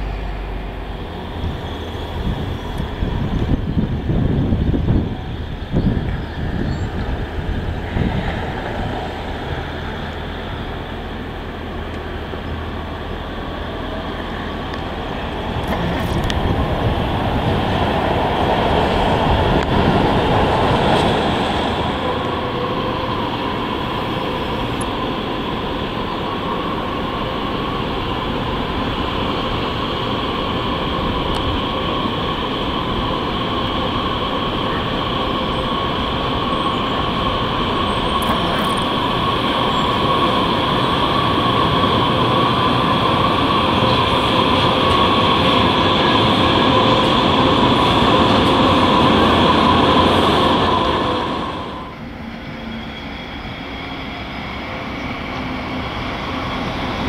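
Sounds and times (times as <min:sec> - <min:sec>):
light-rail train passing: 0:00.0 - 0:57.0
train wheel squeal: 0:01.3 - 0:03.8, 0:31.7 - 0:57.0.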